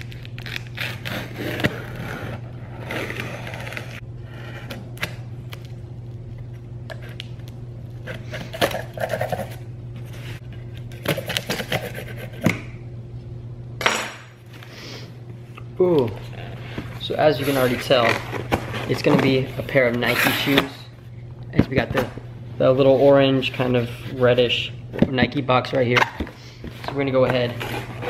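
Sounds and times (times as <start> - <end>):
knife slitting packing tape: 0.0 - 1.9
tape and cardboard ripping: 0.0 - 4.0
steady low hum: 0.0 - 28.0.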